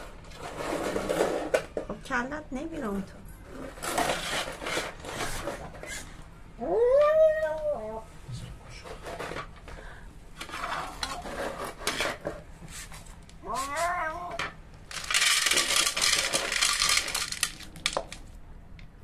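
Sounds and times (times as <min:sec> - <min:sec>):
cat meowing: 0:06.6 - 0:08.0, 0:13.4 - 0:14.5.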